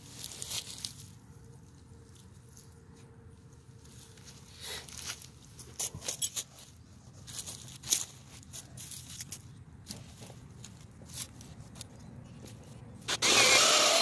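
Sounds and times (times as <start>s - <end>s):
dry leaves crackling: 0.0s - 2.8s.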